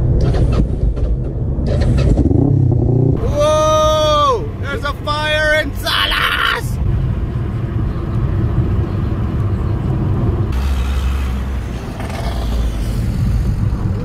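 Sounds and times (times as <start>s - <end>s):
car engine and tyres rumbling: 0.0s - 14.0s
deeper rumble: 6.7s - 14.0s.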